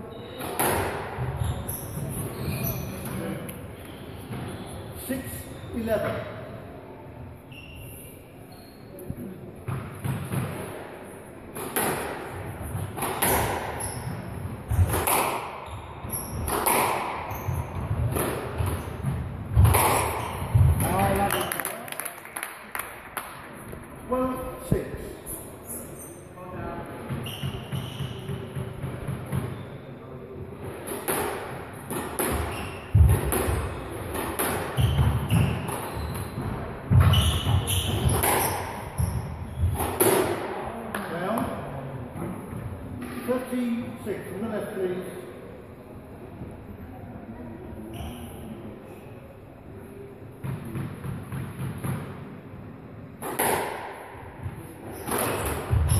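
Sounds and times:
racket striking squash ball: 0.4 - 1.4, 9.6 - 10.8, 11.5 - 21.5, 30.7 - 40.6, 50.4 - 52.2, 53.2 - 55.9
trainers squeaking on wooden floor: 1.2 - 4.8, 34.8 - 39.8
squash ball cracking off rackets: 14.8 - 15.6, 16.4 - 17.3.

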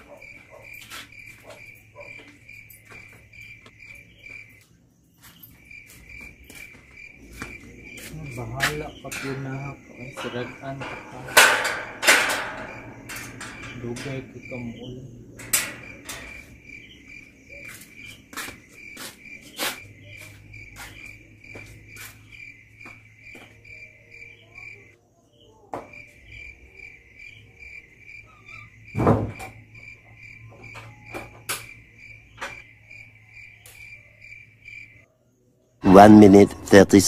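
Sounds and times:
crickets chirping: 0.0 - 37.0
sharp clicks and knocks: 15.4 - 16.5
loud thump: 29.0 - 29.5.

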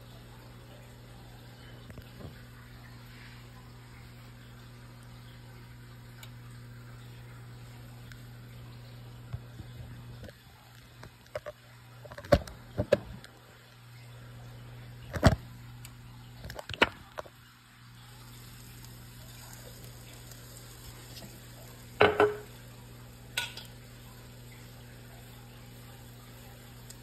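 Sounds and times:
pancake sizzling in oil: 15.1 - 27.0
oil popping: 18.3 - 24.7.

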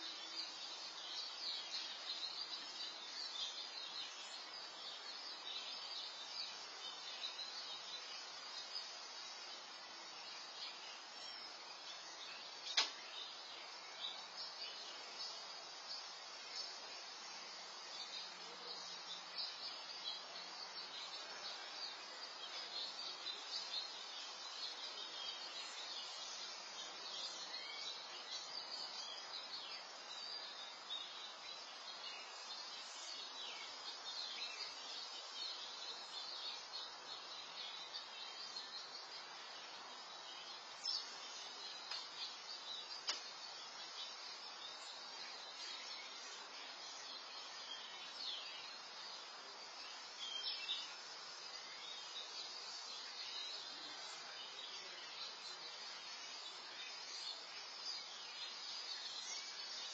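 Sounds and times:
faint hiss: 0.0 - 59.9.

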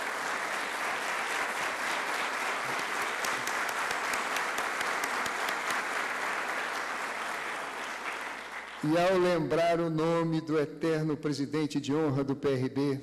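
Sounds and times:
sharp individual claps: 0.0 - 8.9
audience applauding: 0.0 - 9.0.

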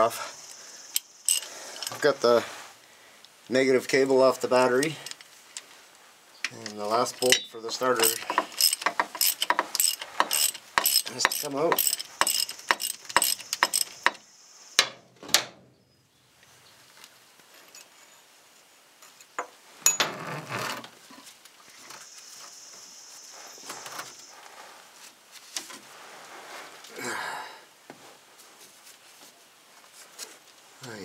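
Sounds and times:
socket ratchet clicking: 1.0 - 1.9, 8.0 - 14.2
metallic clinks and scraping: 1.2 - 2.0, 7.0 - 14.1, 17.5 - 18.3, 19.0 - 20.3.

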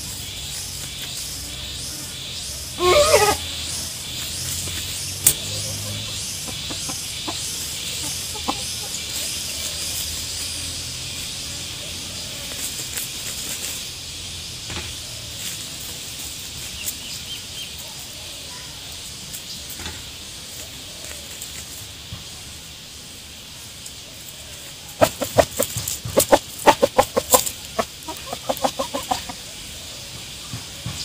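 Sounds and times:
steady high hiss: 0.0 - 31.0
chicken clucking softly: 5.3 - 10.7, 24.1 - 31.0.

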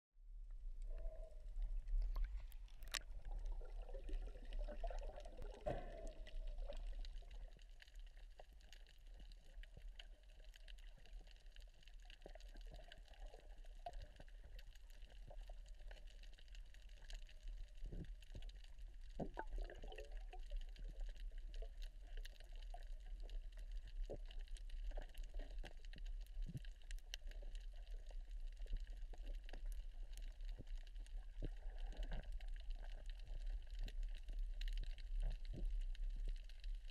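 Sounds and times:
water bubbling: 0.8 - 10.3, 19.0 - 22.1
muffled underwater sloshing: 0.8 - 36.9
faint clicks: 1.9 - 3.1.

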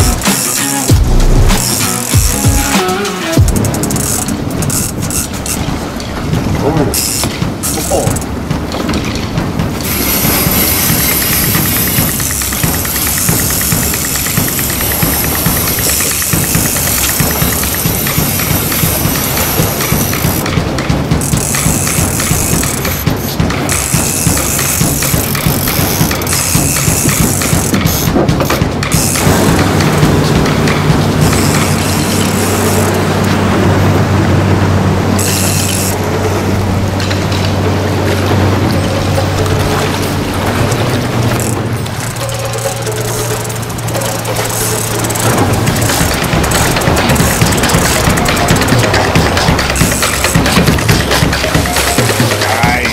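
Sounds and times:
fast even ticking: 0.0 - 33.3, 38.7 - 52.9
boat engine running: 0.0 - 52.9
water on the hull: 0.0 - 52.9
wind: 0.0 - 52.9
hiss: 9.9 - 20.4.

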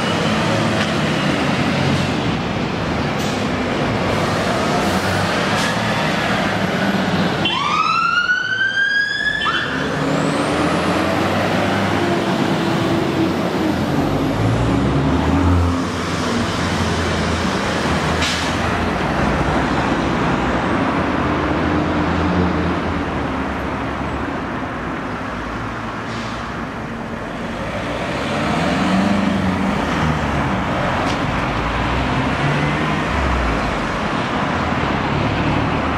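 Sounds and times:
diesel engines revving: 0.0 - 35.9
road noise: 0.0 - 35.9
siren sweeping up: 7.4 - 9.9.

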